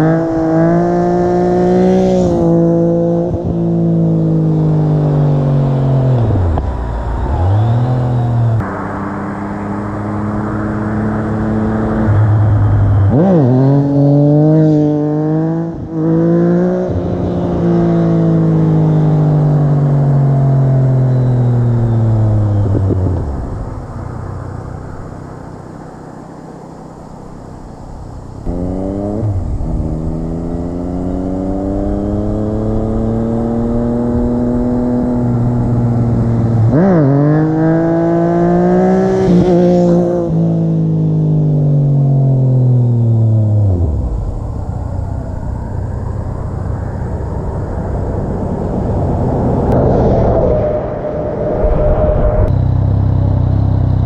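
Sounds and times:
motorcycle engine revving hard: 0:00.0 - 0:06.6, 0:07.3 - 0:23.4, 0:28.4 - 0:44.2.

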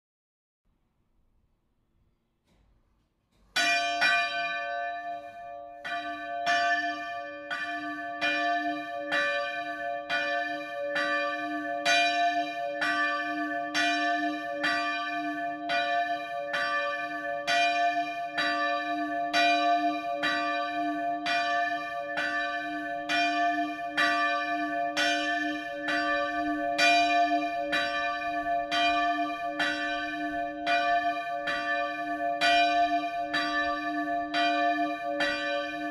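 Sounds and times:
church bell ringing: 0:03.5 - 0:35.9.

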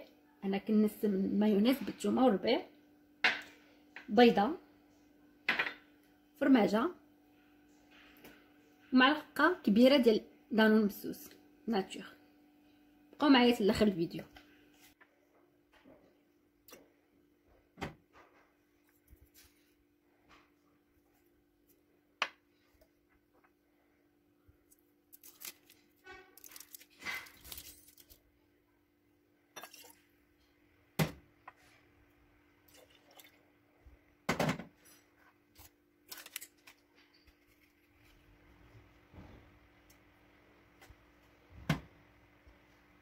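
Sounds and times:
glass and spoon clinking: 0:29.6 - 0:29.9
liquid pouring: 0:32.7 - 0:33.4.

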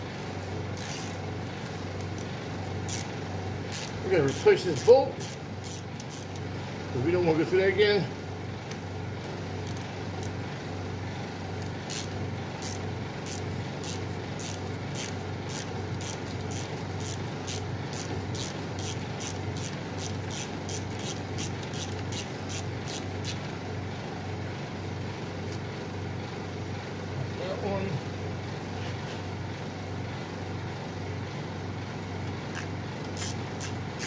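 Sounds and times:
steady low hum: 0:00.0 - 0:34.0
hand ratchet clicking: 0:00.8 - 0:01.2, 0:02.9 - 0:03.1, 0:03.7 - 0:06.4, 0:11.8 - 0:23.4, 0:32.6 - 0:33.8.

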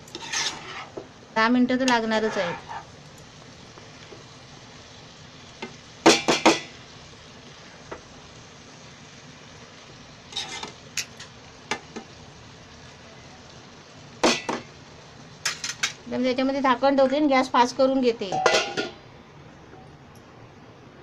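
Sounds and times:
spatula scraping and knocking pan: 0:00.0 - 0:01.1, 0:01.8 - 0:02.9, 0:10.3 - 0:12.1
faint sizzle of vegetables: 0:00.0 - 0:21.0.

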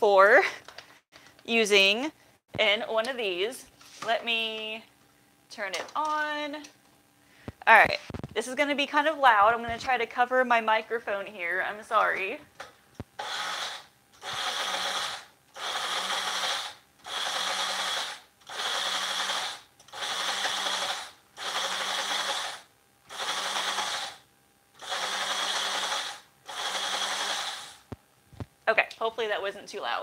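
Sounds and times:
blender pulsing: 0:13.2 - 0:24.2, 0:24.8 - 0:28.0.

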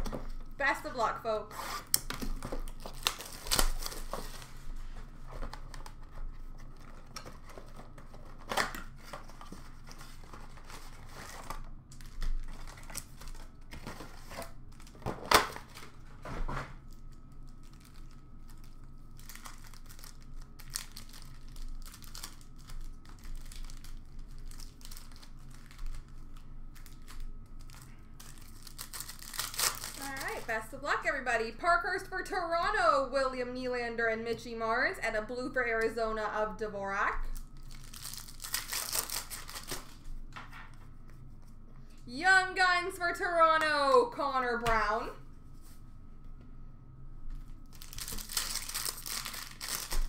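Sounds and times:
card wrappers crinkling and ripping: 0:01.8 - 0:16.1, 0:16.8 - 0:30.5, 0:37.3 - 0:40.8, 0:47.4 - 0:50.0.

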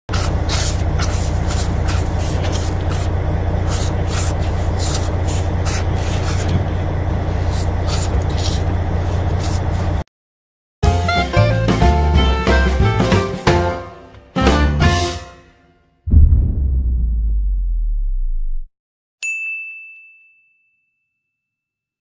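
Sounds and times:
boat engine droning: 0:00.2 - 0:10.0.

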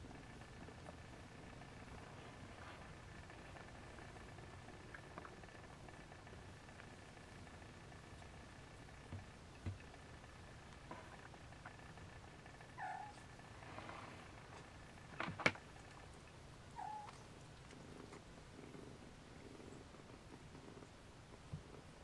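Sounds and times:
cats purring: 0:00.0 - 0:22.0
kitten squeaky mews: 0:16.8 - 0:17.2.

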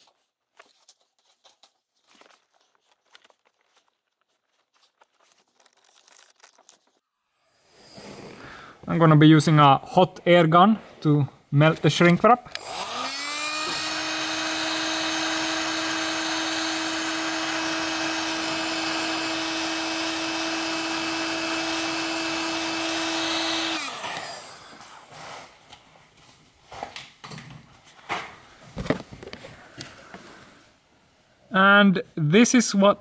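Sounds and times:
faint handling sounds: 0:00.0 - 0:07.0
hot air gun fan whine: 0:12.6 - 0:24.9.

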